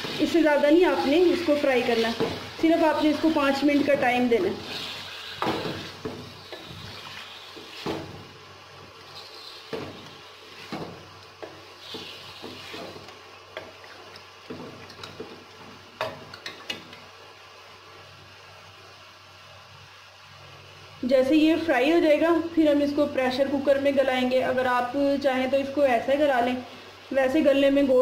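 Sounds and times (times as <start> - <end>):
wooden spatula scraping a pan: 0.0 - 8.4, 9.0 - 15.3
meat sizzling in oil: 0.0 - 20.3.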